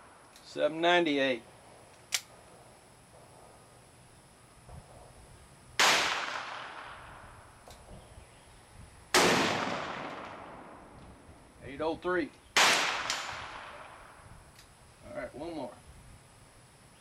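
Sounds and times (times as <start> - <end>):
revolver shots echoing: 5.8 - 7.1, 9.2 - 10.7.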